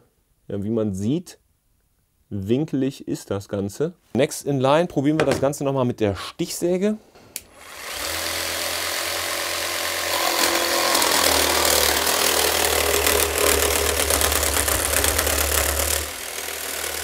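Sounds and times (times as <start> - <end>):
jigsaw sawing wood: 7.5 - 17.0.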